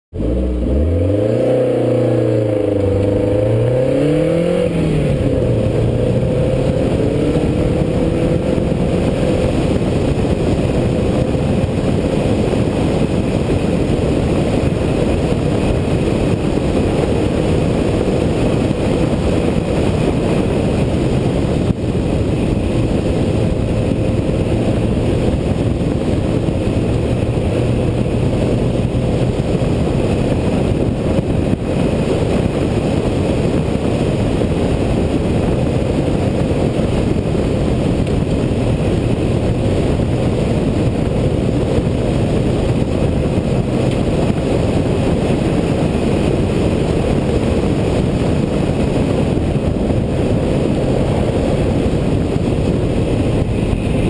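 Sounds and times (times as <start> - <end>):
car engine accelerating hard: 0.1 - 54.0
wind and road noise: 0.1 - 54.0.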